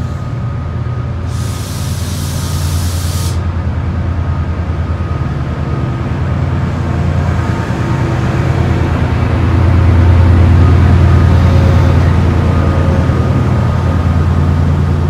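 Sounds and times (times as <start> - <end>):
diesel locomotive engine drone: 0.0 - 15.0
air hissing: 1.3 - 3.5.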